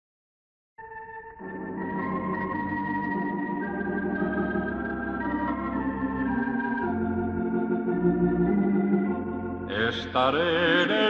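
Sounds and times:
organ playing chords: 0.8s - 11.0s.

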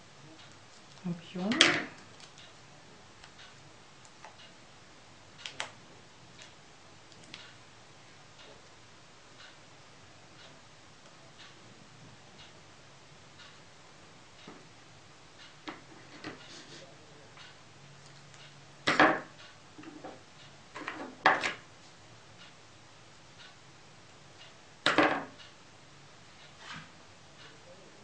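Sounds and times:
light clicks and taps: 6.4s - 7.6s.

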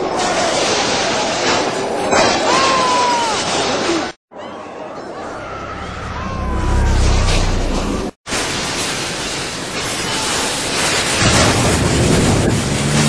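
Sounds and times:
low rumble: 5.2s - 8.2s
rushing water: 7.1s - 13.0s.

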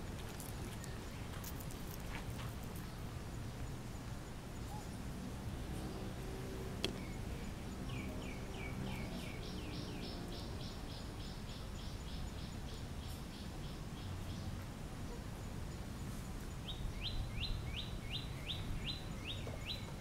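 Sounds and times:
bird chirping: 0.0s - 5.0s, 5.6s - 15.2s, 16.5s - 20.0s
outdoor background noise: 0.0s - 20.0s.

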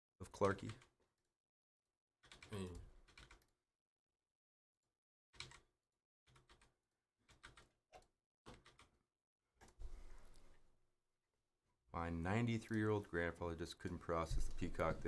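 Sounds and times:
clicking and tapping at desk: 6.3s - 9.0s.

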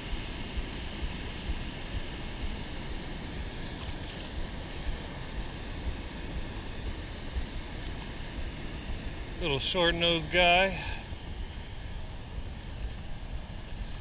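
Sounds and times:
wind rumbling on microphone: 11.0s - 14.0s.

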